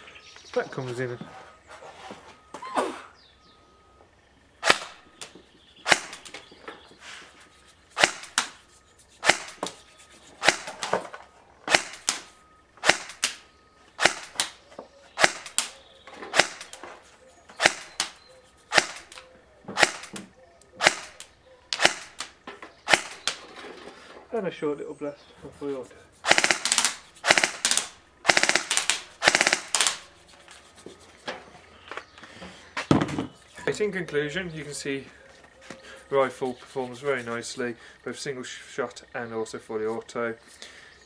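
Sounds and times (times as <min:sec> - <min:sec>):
airsoft rifle shot clicks: 0:04.6 - 0:06.5, 0:08.0 - 0:08.6, 0:09.2 - 0:09.7, 0:10.4 - 0:11.0, 0:11.7 - 0:13.4, 0:14.0 - 0:14.6, 0:15.2 - 0:16.8, 0:17.6 - 0:23.4, 0:26.2 - 0:30.0.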